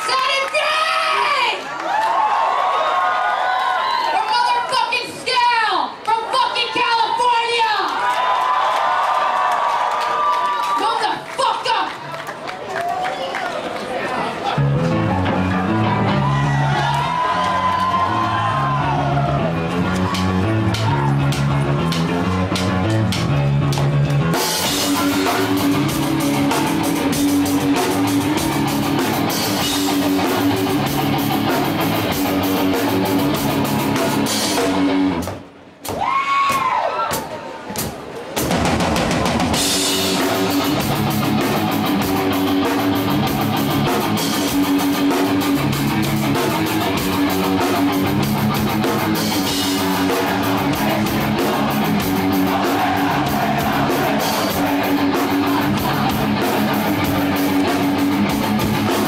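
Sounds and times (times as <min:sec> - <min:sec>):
distorted electric guitar: 0:14.6 - 0:35.3, 0:39.1 - 0:59.0
punk band playing live: 0:14.6 - 0:35.5, 0:38.4 - 0:59.0
pounding drum kit: 0:14.6 - 0:59.0.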